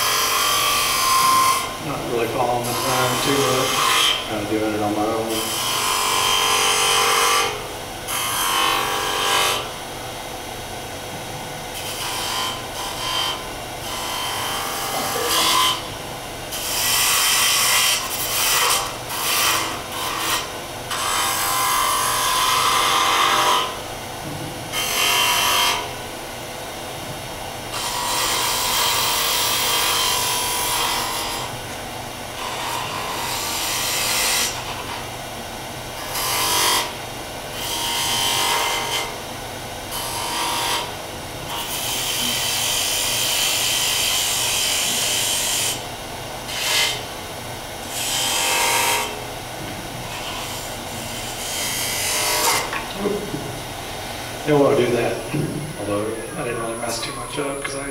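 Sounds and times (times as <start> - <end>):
lathe tool cutting wood: 0.0 - 9.7, 11.8 - 15.9, 16.5 - 23.9, 24.7 - 25.9, 27.7 - 31.6, 32.4 - 34.7, 39.9 - 45.8, 46.5 - 47.1, 47.9 - 49.2, 50.1 - 57.9.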